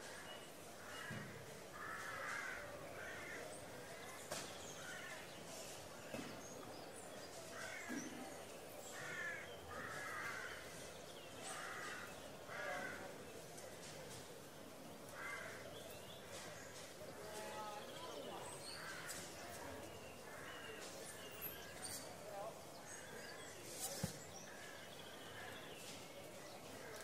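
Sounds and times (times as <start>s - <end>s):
crows cawing: 0.8s - 3.5s, 9.0s - 10.8s, 11.4s - 13.2s, 15.1s - 15.6s, 18.8s - 19.3s.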